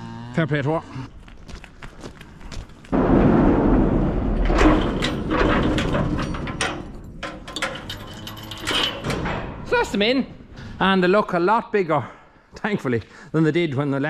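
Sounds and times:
metal sliding door rumbling scrape: 2.9 - 9.8
door bolt clicks and knocks: 4.5 - 9.7.

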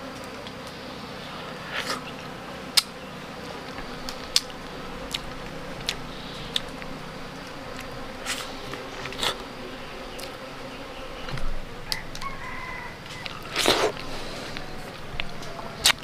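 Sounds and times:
bees buzzing: 0.0 - 16.0
honeycomb rustling: 0.0 - 16.0
sticky honeycomb clicks: 3.6 - 10.4
rooster crowing: 11.6 - 15.8.

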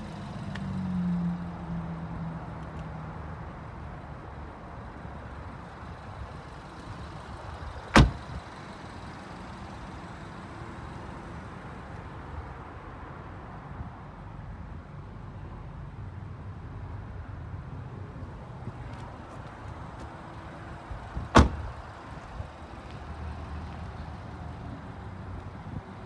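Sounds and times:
car door shutting: 7.9 - 8.4, 21.2 - 21.8.

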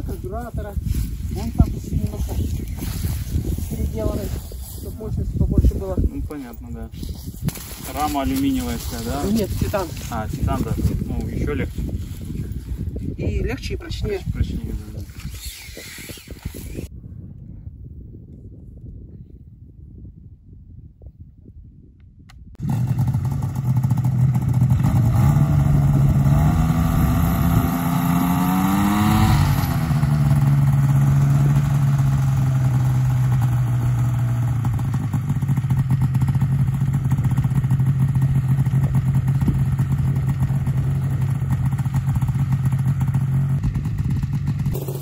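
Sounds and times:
propeller engine running: 22.6 - 45.0.

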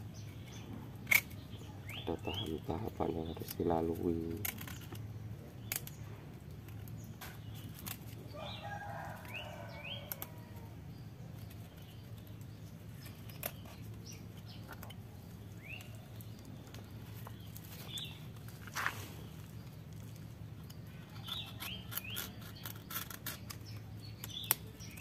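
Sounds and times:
birds chirping: 0.0 - 25.0
knife scraping coconut husk: 21.0 - 25.0.

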